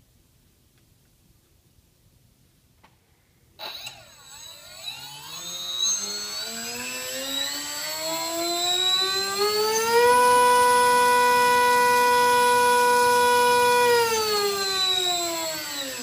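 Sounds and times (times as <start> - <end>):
electric motor propeller whine: 3.6 - 16.0.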